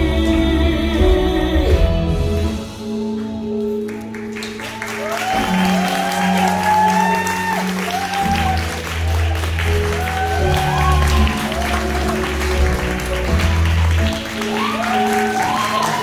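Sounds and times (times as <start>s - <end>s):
music with long held notes: 0.0s - 16.0s
audience applause: 3.8s - 16.0s.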